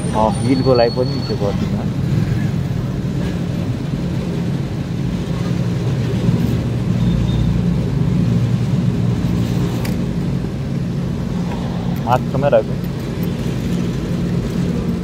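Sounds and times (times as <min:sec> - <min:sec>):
fuel pump humming: 0:00.0 - 0:15.0.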